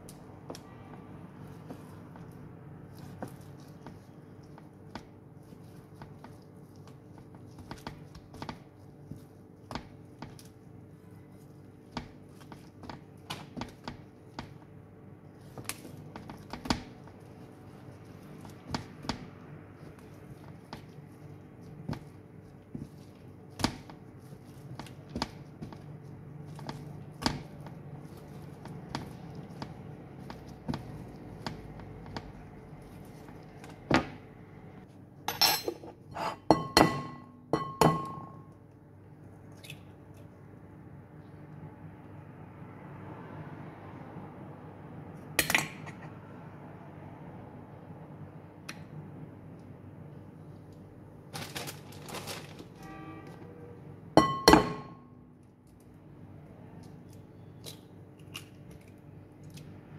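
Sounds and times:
low steady hum: 0.0 - 42.9.

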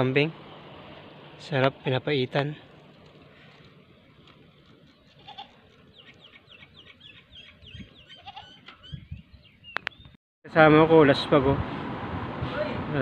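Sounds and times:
goats bleating: 5.1 - 5.6.

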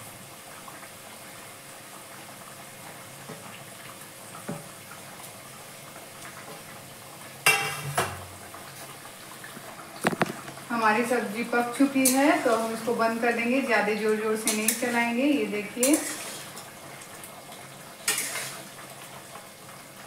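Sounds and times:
gravy simmering: 0.0 - 20.0
metal clanks on pan: 7.4 - 8.3, 12.0 - 12.5, 14.4 - 15.0, 18.0 - 18.6
soft plops into gravy: 9.4 - 10.7.

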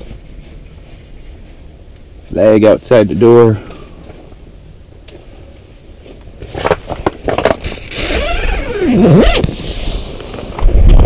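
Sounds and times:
rustling: 0.0 - 2.2, 5.1 - 11.0
falling and rising squeak: 7.9 - 9.5.

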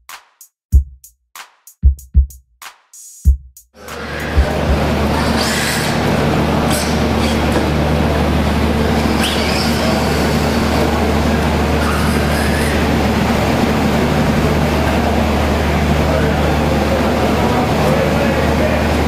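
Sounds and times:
low hum of indoor hall: 3.8 - 19.0.

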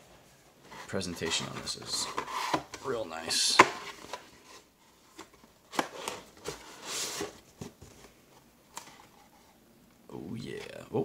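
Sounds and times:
cardboard sliding rustle: 0.6 - 8.1.

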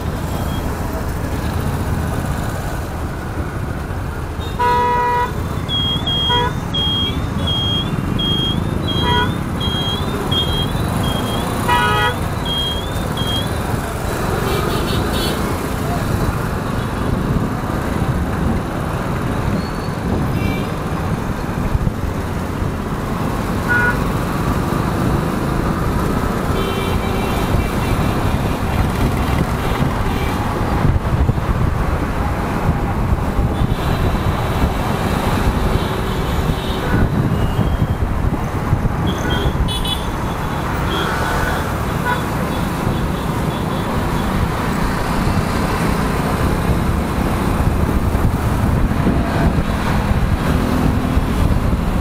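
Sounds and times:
motorcycle engine and road noise: 0.0 - 52.0
vehicle horns tooting: 4.4 - 13.5, 23.7 - 24.0, 39.0 - 41.2, 42.0 - 44.4.

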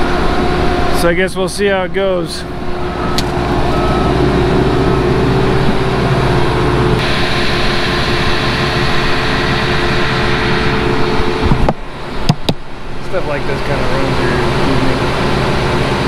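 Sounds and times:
diesel engine running: 0.0 - 16.0.

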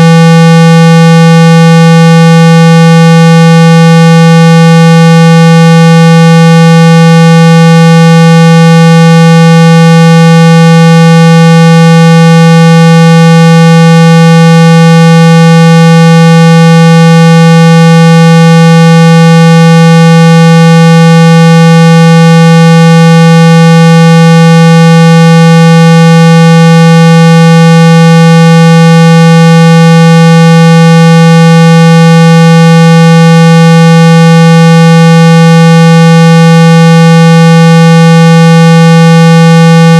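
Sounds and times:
low buzzy tone: 0.0 - 14.9.

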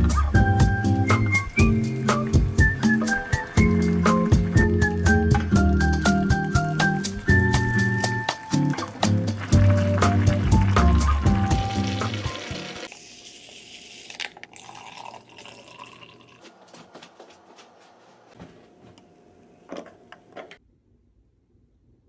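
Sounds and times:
background music: 0.0 - 12.9
liquid pouring into glass mug: 13.7 - 16.4.

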